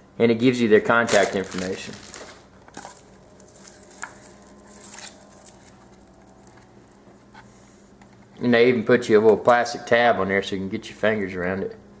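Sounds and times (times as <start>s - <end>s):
plastic packaging rustling: 0.9s - 7.0s.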